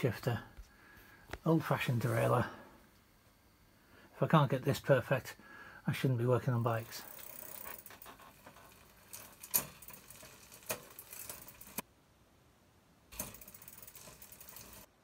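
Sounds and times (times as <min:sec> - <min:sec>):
bicycle chain running through derailleur: 0:06.7 - 0:11.8, 0:13.1 - 0:14.9
freewheel ratchet ticking: 0:13.2 - 0:14.9.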